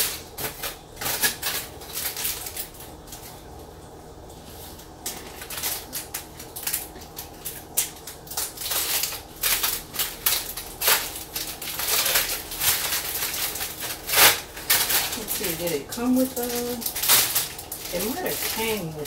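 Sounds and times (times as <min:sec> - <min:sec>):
plastic sleeve crinkling: 0:00.0 - 0:03.5, 0:04.4 - 0:19.0
aluminium foil crinkling: 0:00.0 - 0:19.0.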